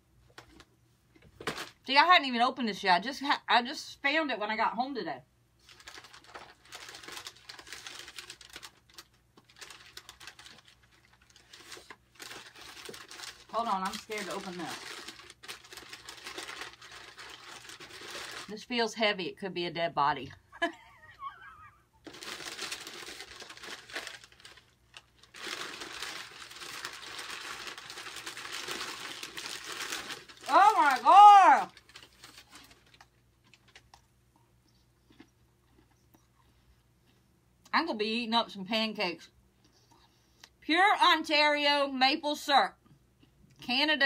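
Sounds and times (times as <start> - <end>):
wrappers rustling and crinkling: 1.4 - 1.9, 5.6 - 18.7, 22.0 - 34.0.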